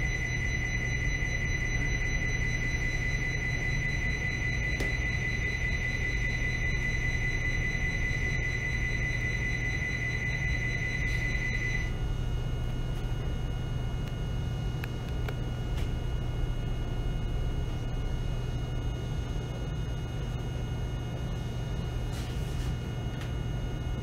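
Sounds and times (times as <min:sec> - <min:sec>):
high electronic tone: 0:00.0 - 0:12.7.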